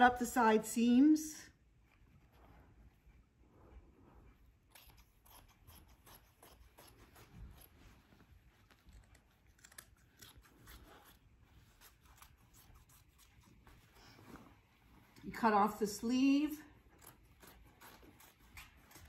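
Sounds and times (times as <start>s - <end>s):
scissors snipping fabric: 4.6s - 7.8s, 9.0s - 13.6s, 16.8s - 19.0s.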